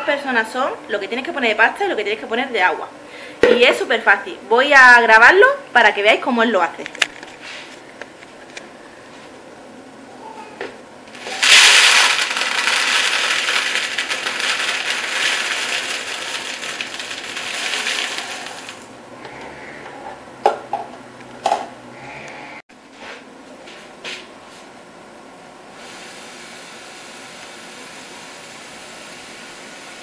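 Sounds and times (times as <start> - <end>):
dry pasta poured into plastic container: 11.2 - 18.9.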